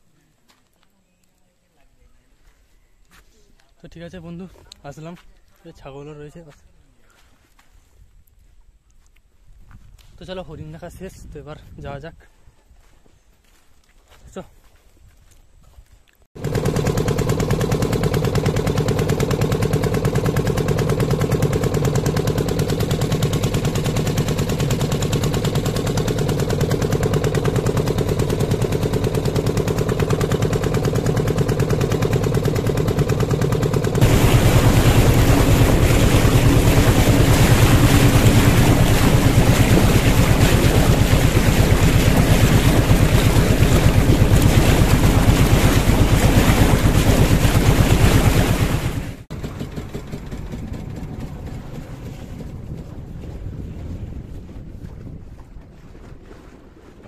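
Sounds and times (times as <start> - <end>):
motorboat engine running: 16.4 - 57.0
water rushing and splashing: 32.3 - 49.3.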